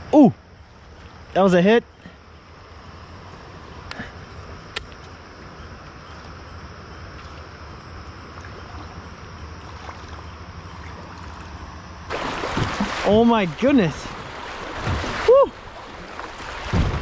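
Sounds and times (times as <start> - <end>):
river water rushing: 10.8 - 17.0.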